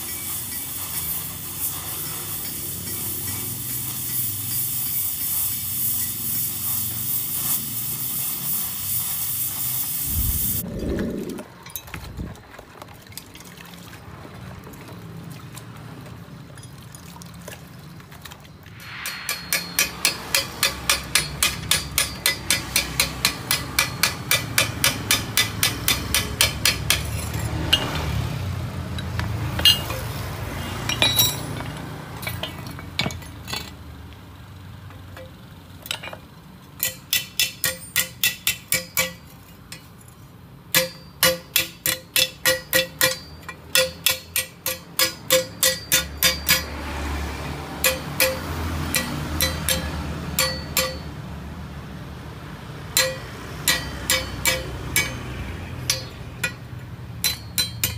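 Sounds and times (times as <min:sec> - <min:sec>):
hammer tapping metal pipe: 0:18.8 - 0:28.0, 0:29.1 - 0:30.1, 0:36.8 - 0:39.9, 0:40.7 - 0:46.8, 0:47.8 - 0:51.2, 0:52.9 - 0:57.9.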